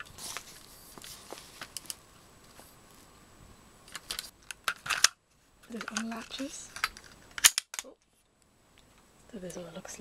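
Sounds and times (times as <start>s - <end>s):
soft rustling: 0.0s - 3.2s.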